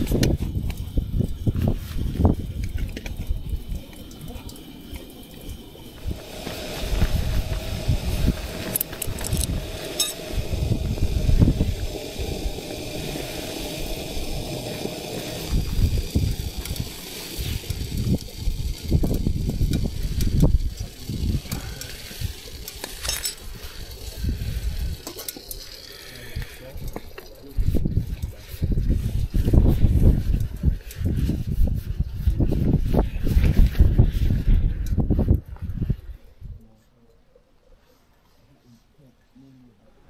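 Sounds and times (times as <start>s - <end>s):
wind gusting against microphone: 0.0s - 25.1s, 26.2s - 36.6s
steady hum: 0.0s - 26.7s.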